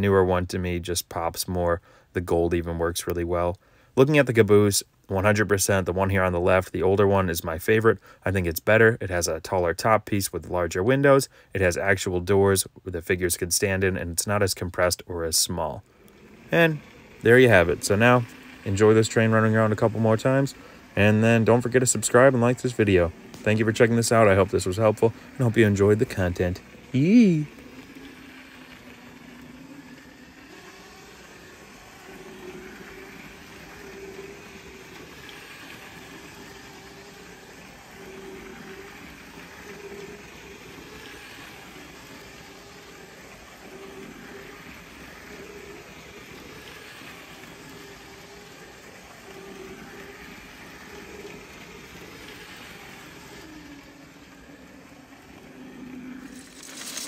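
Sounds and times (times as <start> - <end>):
small electric motor hum: 13.6 - 57.0.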